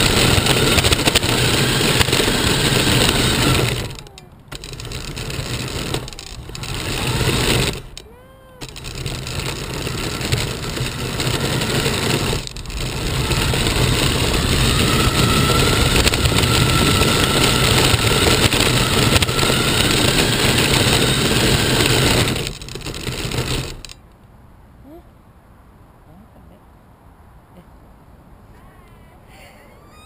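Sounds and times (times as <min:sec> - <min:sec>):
faint motor whine: 0:00.0 - 0:24.0
rc car motor and tyres rushing: 0:00.0 - 0:24.0, 0:29.7 - 0:30.0.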